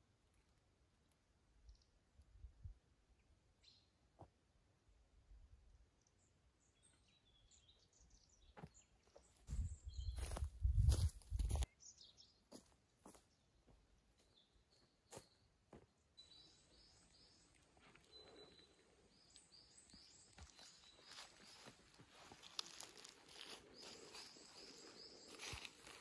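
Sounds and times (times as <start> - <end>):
heavy footsteps on forest floor: 8.6 - 11.7, 19.7 - 26.0
songbird calling: 16.2 - 26.0
leaf litter crunching underfoot: 20.6 - 26.0.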